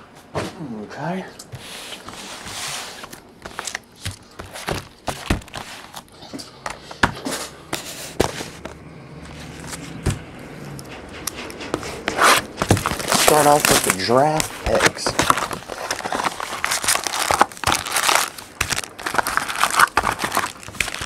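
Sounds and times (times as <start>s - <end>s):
boxes scraping on table: 1.6s - 3.8s, 6.7s - 18.3s
cardboard boxes knocking on table: 4.1s - 5.6s, 10.0s - 10.3s, 12.6s - 13.9s.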